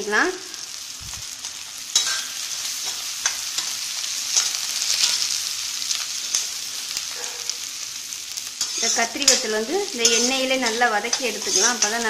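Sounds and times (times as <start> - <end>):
vegetables sizzling in hot oil: 0.0 - 12.0
metal spoon scraping pan: 1.9 - 5.2, 8.6 - 12.0.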